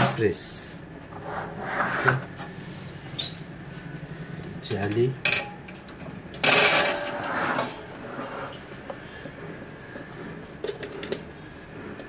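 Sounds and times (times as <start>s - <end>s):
wire grill rack scraping: 6.4s - 8.7s.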